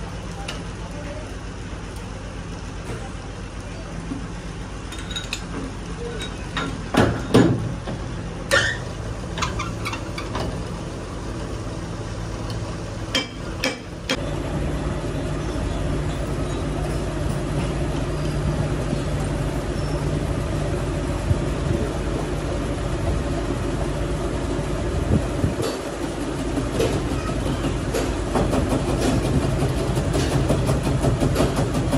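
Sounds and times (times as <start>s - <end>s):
machine droning: 8.0s - 31.9s.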